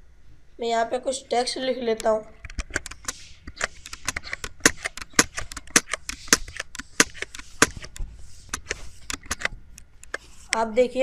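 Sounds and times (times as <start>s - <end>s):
keyboard key clicks: 2.4s - 10.2s.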